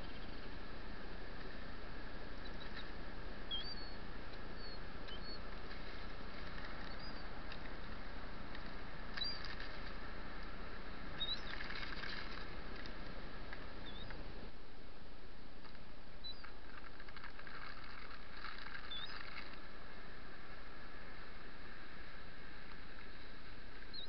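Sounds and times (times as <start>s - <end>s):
wind: 0.0s - 24.0s
shorebirds chirping: 3.5s - 5.5s.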